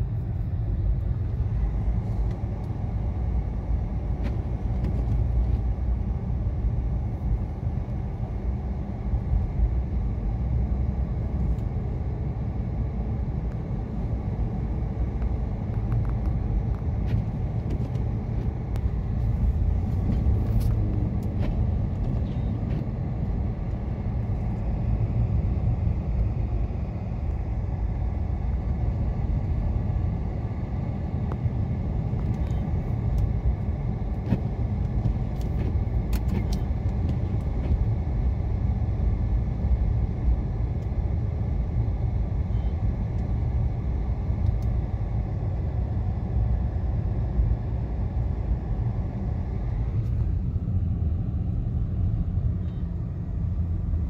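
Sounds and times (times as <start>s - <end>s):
car engine: 0.0s - 54.0s
tyres rumbling on snow: 12.6s - 39.1s.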